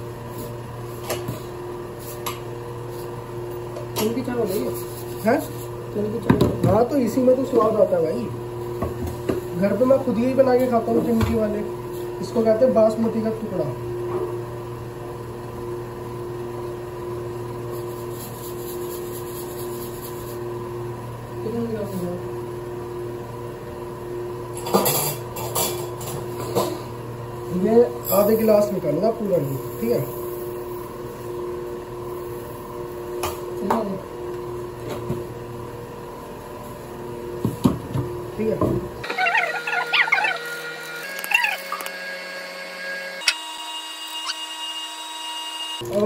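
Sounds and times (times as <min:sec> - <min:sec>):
steady mechanical hum: 0:00.0 - 0:46.0
electric motor humming: 0:39.0 - 0:46.0.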